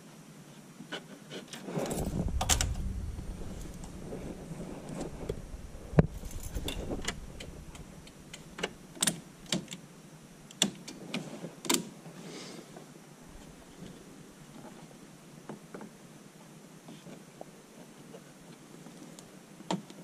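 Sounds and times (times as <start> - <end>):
sharp clicks and knocks: 1.8 - 9.8.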